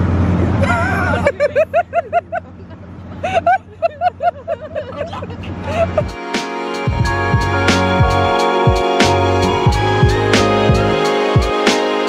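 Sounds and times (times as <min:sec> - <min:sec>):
people laughing: 0:00.6 - 0:06.2.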